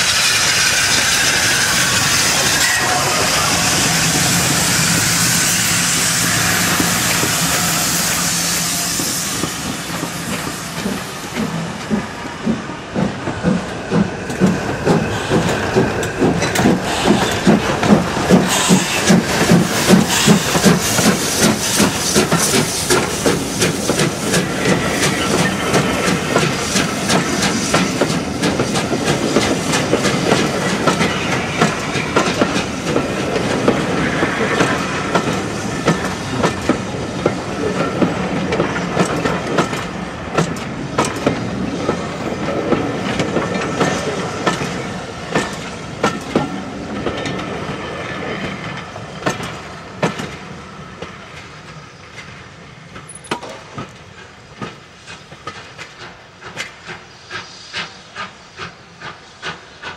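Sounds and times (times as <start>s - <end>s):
train rumbling past: 0.0s - 59.9s
wheels clicking over rail joints: 48.6s - 56.9s.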